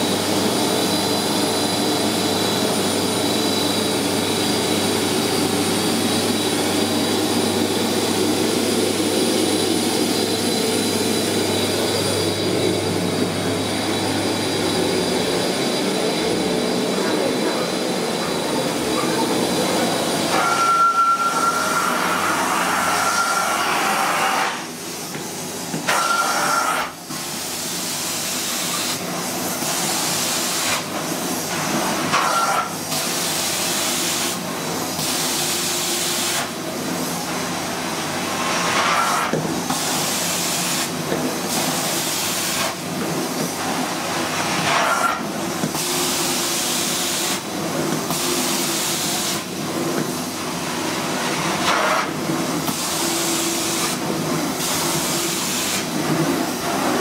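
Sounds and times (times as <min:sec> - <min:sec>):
carpet cleaning machine running: 0:00.0 - 0:57.0
short high whistle: 0:20.4 - 0:22.0
hiss of cleaning wand: 0:51.6 - 0:57.0.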